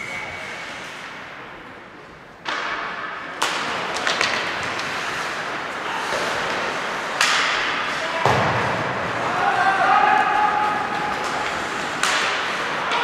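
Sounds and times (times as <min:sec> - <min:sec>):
hockey sticks and puck knocking: 0:02.4 - 0:09.4, 0:10.2 - 0:13.0
skates scraping on ice: 0:03.4 - 0:13.0.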